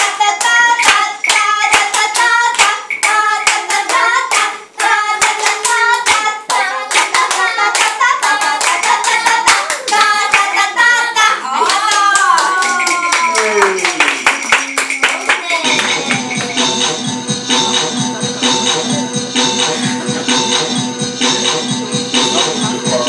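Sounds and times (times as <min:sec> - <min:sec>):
women singing: 0:00.0 - 0:13.3
quick hand claps: 0:11.7 - 0:16.6.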